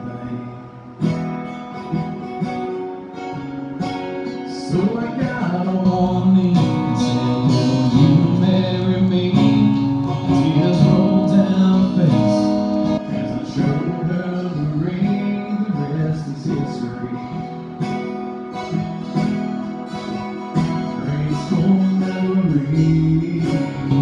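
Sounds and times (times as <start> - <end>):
man singing: 0.0 - 1.2, 4.2 - 17.7, 20.6 - 24.0
acoustic guitars strummed: 0.0 - 24.0.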